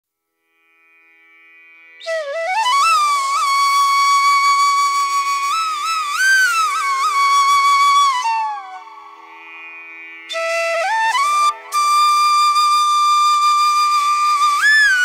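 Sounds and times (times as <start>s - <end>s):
flute long note: 2.0s - 9.6s, 10.3s - 15.0s.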